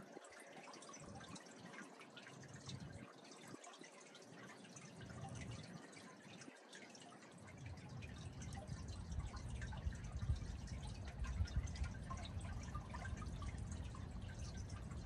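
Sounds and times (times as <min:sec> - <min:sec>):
water dripping and splashing: 0:00.0 - 0:15.0
steady low rumble: 0:08.1 - 0:15.0.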